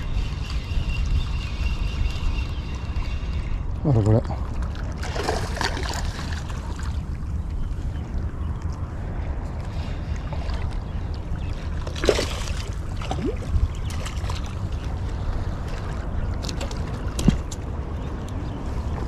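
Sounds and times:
wind rumble on microphone: 0.0s - 19.0s
waves lapping at rocks: 4.5s - 7.2s.

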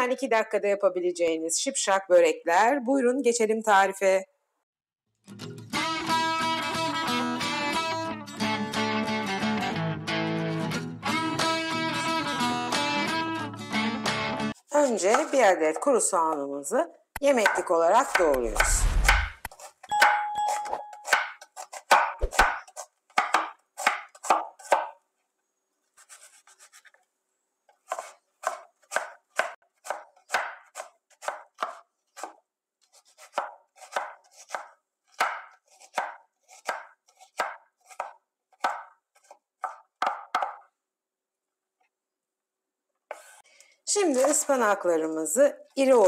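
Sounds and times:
knife chopping on wooden board: 17.4s - 25.0s, 27.8s - 40.7s.

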